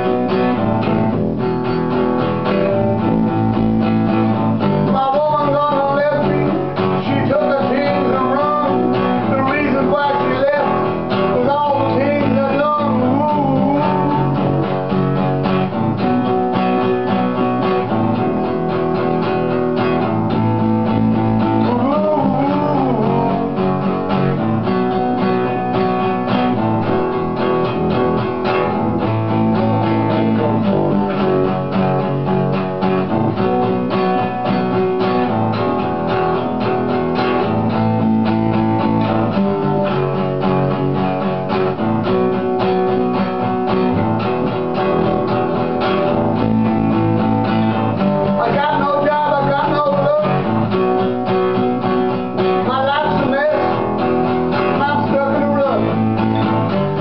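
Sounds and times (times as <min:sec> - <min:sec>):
acoustic guitar strumming chords: 0:00.0 - 0:57.0
electric guitar bending notes: 0:00.0 - 0:57.0.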